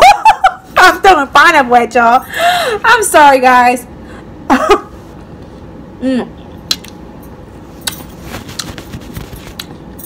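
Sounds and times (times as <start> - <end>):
person humming: 6.0 - 6.4
hand rubbing against camera: 8.1 - 9.7.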